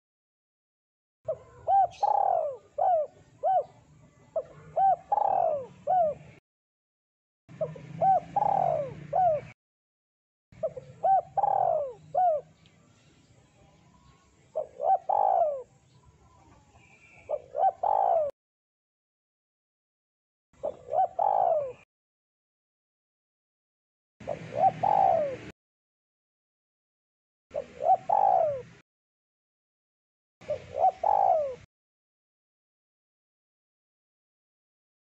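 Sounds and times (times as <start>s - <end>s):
dove cooing: 1.3s - 6.4s, 7.5s - 9.6s, 10.6s - 12.6s, 14.5s - 18.4s, 20.6s - 21.9s, 24.2s - 25.5s, 27.5s - 28.8s, 30.4s - 31.7s.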